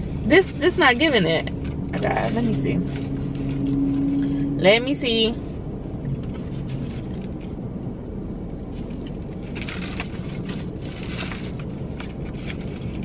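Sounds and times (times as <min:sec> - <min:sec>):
low rumble in car cabin: 0:00.0 - 0:13.0
foil paper wrapper crinkling: 0:08.7 - 0:13.0.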